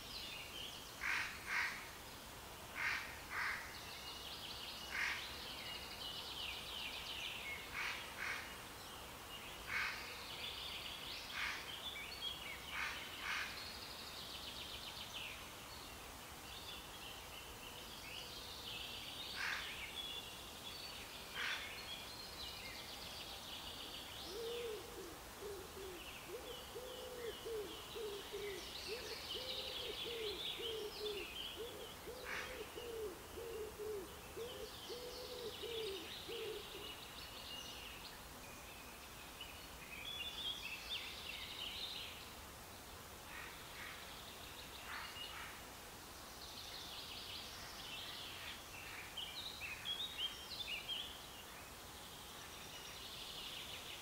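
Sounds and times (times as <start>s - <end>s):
faint outdoor background noise: 0.0s - 54.0s
songbirds chirping: 0.0s - 54.0s
low hooting bird call: 24.2s - 36.9s.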